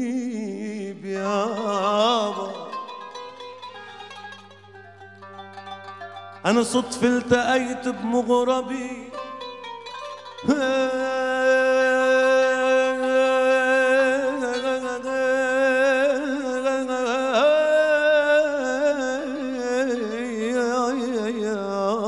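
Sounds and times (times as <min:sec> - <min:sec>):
man singing a long note: 0:00.0 - 0:03.0, 0:06.4 - 0:09.3, 0:10.4 - 0:22.0.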